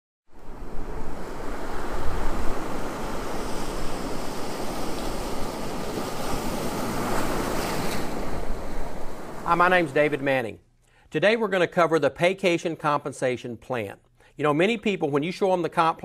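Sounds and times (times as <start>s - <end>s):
ocean surf breaking on beach: 0.3s - 10.4s.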